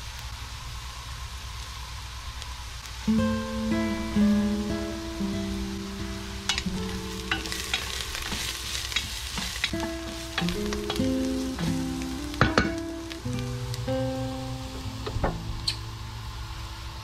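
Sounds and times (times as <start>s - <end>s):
onions sizzling in a pan: 0.0s - 17.0s
guitar music: 3.1s - 16.3s
wooden spatula scraping pan: 7.3s - 11.0s.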